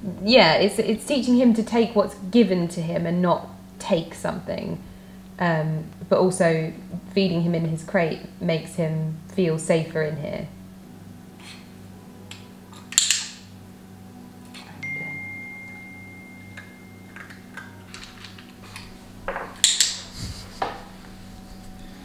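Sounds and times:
call bell ding: 0:14.8 - 0:17.4.

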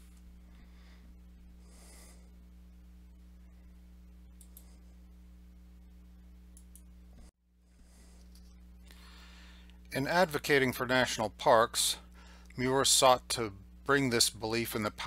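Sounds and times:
low electrical hum: 0:00.0 - 0:15.0
soft breath: 0:00.4 - 0:02.5, 0:07.6 - 0:09.8
faint clicks: 0:04.4 - 0:04.7.

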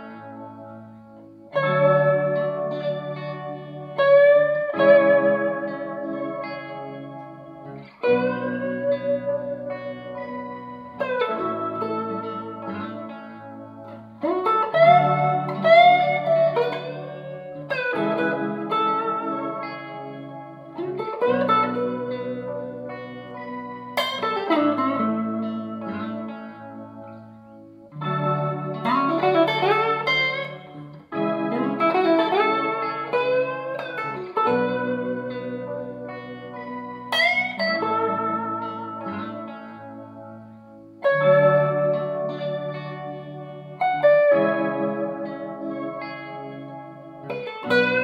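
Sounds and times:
clean electric guitar blues phrase: 0:00.0 - 0:48.0.

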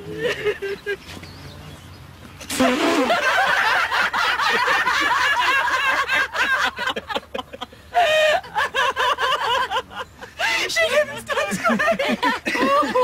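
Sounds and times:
women and man laughing: 0:00.1 - 0:01.2, 0:02.6 - 0:13.0
loud drawn-out laugh: 0:02.5 - 0:10.3, 0:11.4 - 0:13.0.

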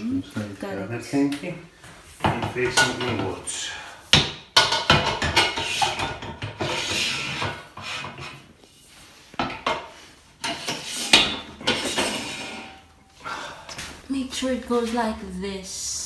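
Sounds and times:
sharp knocks and clacks: 0:04.1 - 0:06.8
metal rails scraping frame: 0:05.4 - 0:08.5, 0:09.5 - 0:13.1.

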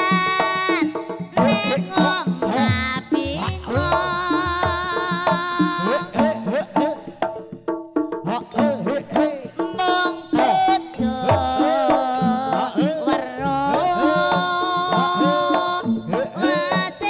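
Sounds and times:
hand drums beating: 0:00.0 - 0:17.0
held melody line: 0:13.4 - 0:15.8.

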